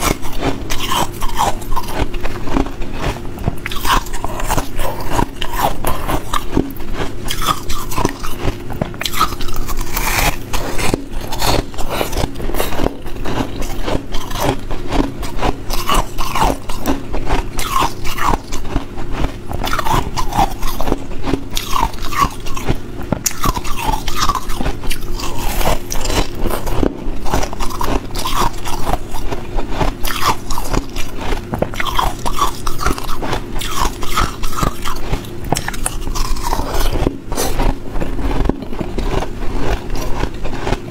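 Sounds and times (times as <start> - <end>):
teeth crunching ice: 0.0 - 40.9.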